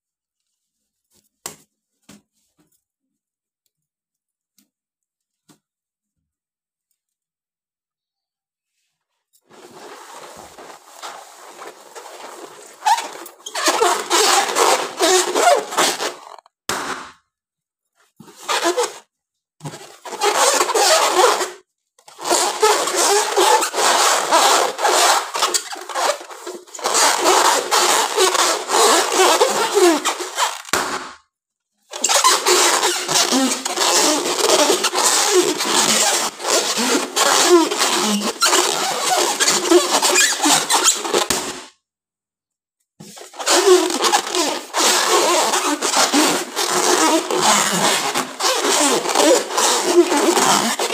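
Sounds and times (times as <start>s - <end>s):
balloons squeaking and creaking: 9.4s - 17.2s, 18.2s - 41.8s, 43.0s - 50.9s.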